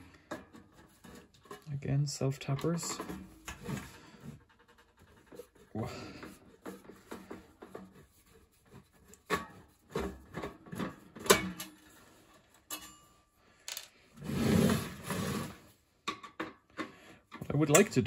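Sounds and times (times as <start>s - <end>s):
metal toaster scraping on bench: 14.2s - 15.7s.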